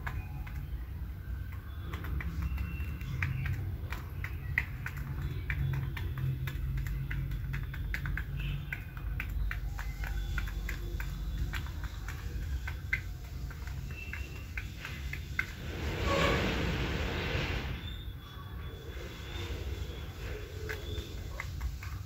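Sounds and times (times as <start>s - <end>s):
quick clicks and taps: 0.0s - 16.0s.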